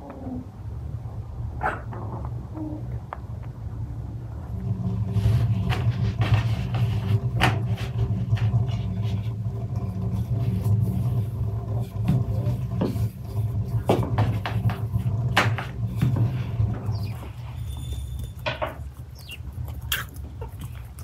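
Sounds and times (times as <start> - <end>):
rolling pin rolling dough on board: 5.0 - 17.3.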